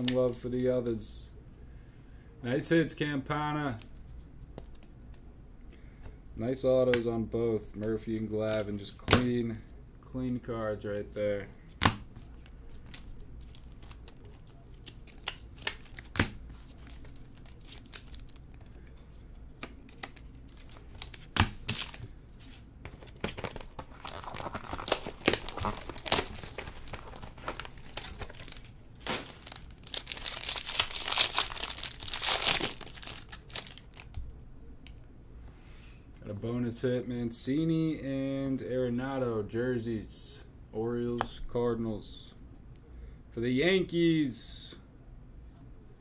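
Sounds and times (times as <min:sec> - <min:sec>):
wrappers crinkling and tearing: 0:12.3 - 0:18.8, 0:19.8 - 0:22.1, 0:22.9 - 0:34.2.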